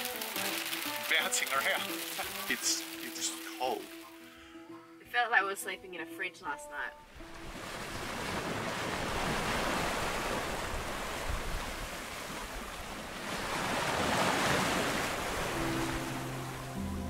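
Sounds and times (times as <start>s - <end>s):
water rushing along boat hull: 0.0s - 4.2s, 7.1s - 17.0s
wind: 7.0s - 17.0s.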